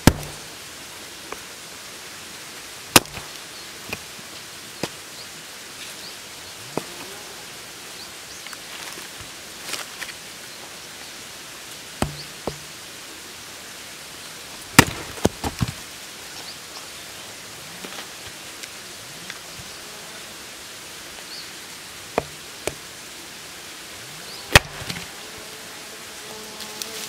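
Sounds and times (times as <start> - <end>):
hatchet chopping a log: 0.0 - 0.5, 2.9 - 3.3, 12.0 - 12.7, 14.7 - 15.8, 22.2 - 22.9, 24.5 - 25.1.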